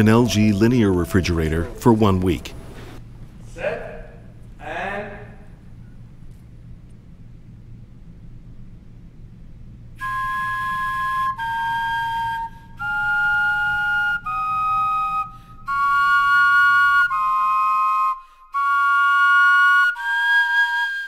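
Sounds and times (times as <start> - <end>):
carrot flutes playing melody: 0.0 - 2.7, 10.0 - 21.0.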